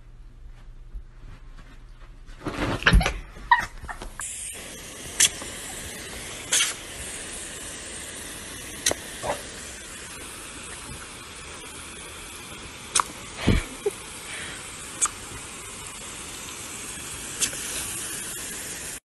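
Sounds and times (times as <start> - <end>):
hose nozzle spraying water: 4.2 - 19.0.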